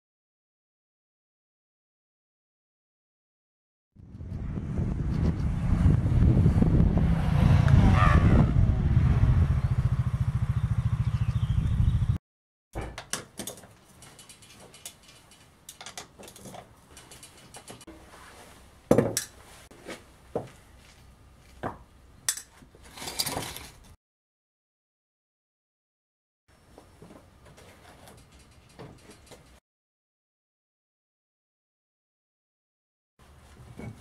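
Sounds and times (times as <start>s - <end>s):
wind buffeting microphone: 4.0s - 12.2s
atv engine running: 4.4s - 12.2s
sharp metal knocks: 12.8s - 16.4s.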